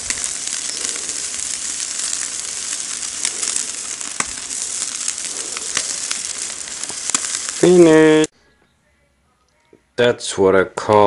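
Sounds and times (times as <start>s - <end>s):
fish sizzling on a grill: 0.0s - 8.3s
sharp pops: 0.0s - 8.3s.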